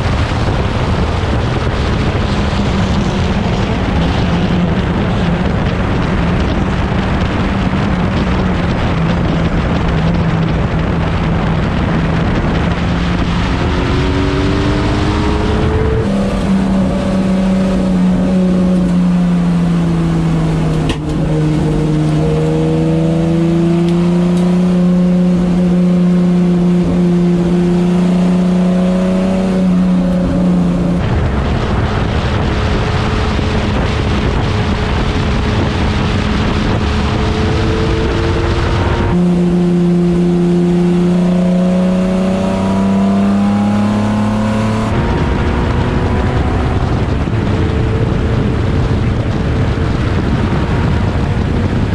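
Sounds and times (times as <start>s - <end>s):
racing car engine: 0.0s - 51.9s
wind and road noise: 0.0s - 51.9s.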